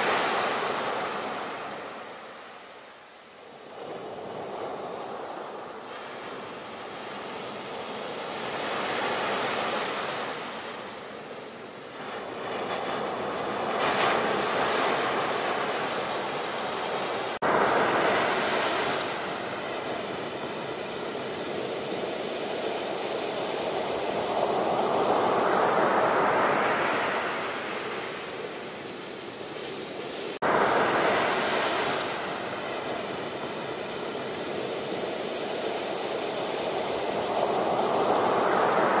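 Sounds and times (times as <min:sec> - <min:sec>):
rushing churning water: 0:29.3 - 0:39.0.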